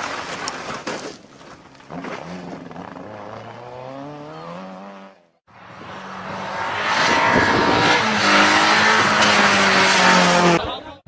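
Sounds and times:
rally car engine pulling hard: 1.9 - 10.7.

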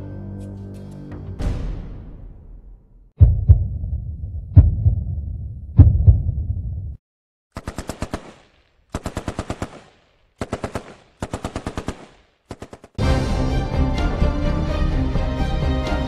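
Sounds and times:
music: 0.0 - 2.7, 13.0 - 16.0
automatic machine-gun fire: 7.6 - 13.0.

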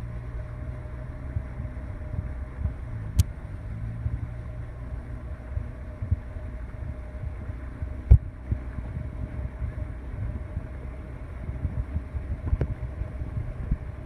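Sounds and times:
outboard motor running: 0.0 - 14.0.

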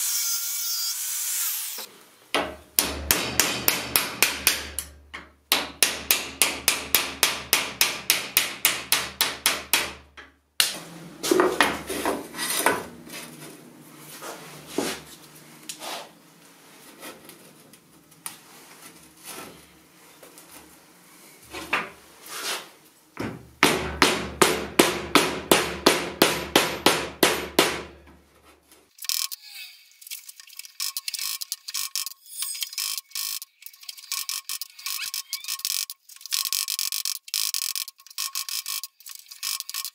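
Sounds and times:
hammer beating chisel into metal: 2.4 - 10.7, 23.6 - 28.0.

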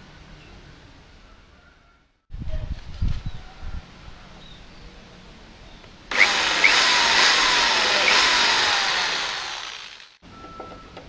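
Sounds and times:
electric drill boring into wood: 6.1 - 10.2.

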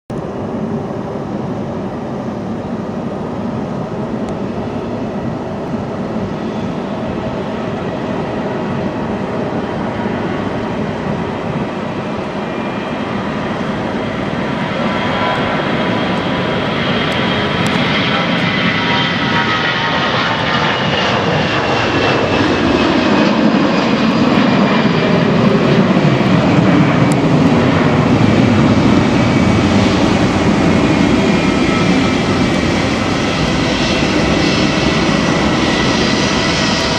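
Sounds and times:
jet airliner taking off: 0.2 - 36.9.

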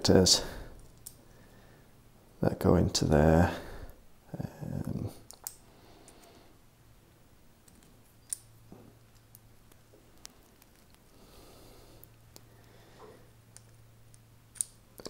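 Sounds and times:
small plastic parts clicking: 5.3 - 6.2, 13.5 - 15.0.

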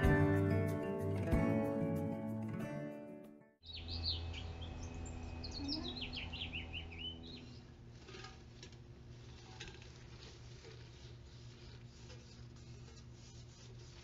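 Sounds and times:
small birds chirping: 3.6 - 7.7
gloved hand rubbing metal pot: 7.6 - 14.0.

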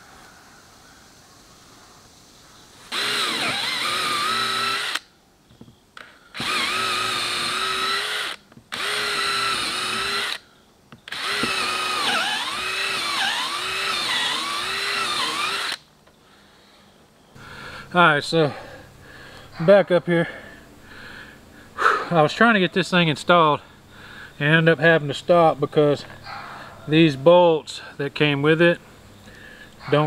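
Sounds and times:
power drill whining: 2.9 - 5.0, 6.3 - 10.4, 11.1 - 15.8.

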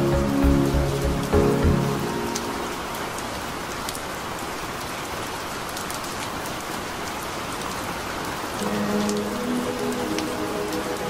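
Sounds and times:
steady rain hiss: 0.0 - 11.0
sharp raindrop ticks: 5.6 - 11.0.

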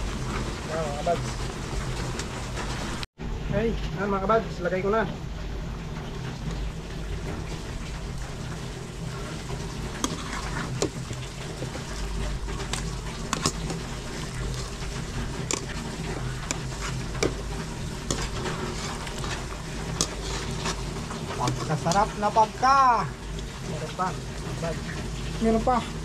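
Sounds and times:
liquid simmering: 0.0 - 3.1, 5.2 - 26.0
metal spoon scraping a pot: 9.1 - 22.1.

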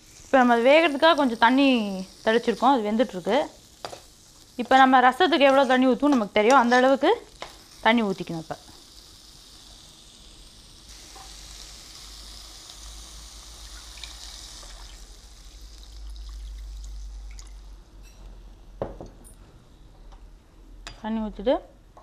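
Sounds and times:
water pouring into frying pan: 12.5 - 17.7.

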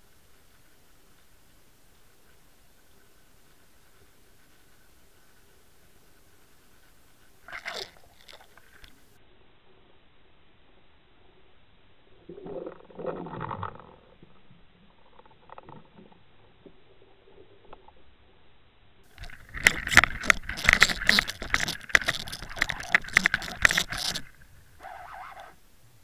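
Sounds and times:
fish rattling a lure underwater: 2.1 - 9.1, 19.1 - 25.6.

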